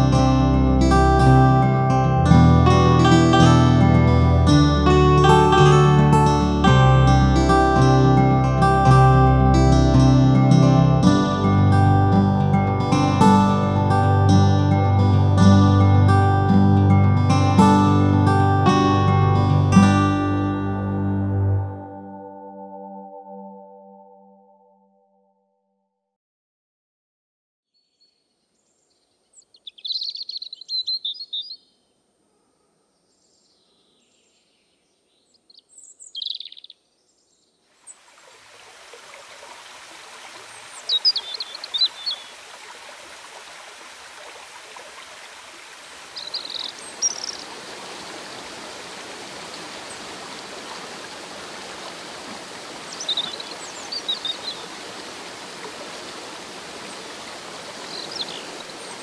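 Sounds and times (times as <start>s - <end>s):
rushing stream and waterfall: 2.8s - 21.1s, 37.7s - 59.0s
bird chirps: 27.8s - 31.8s, 33.0s - 37.5s, 40.6s - 42.4s, 46.2s - 47.5s, 52.8s - 54.7s, 57.8s - 59.0s.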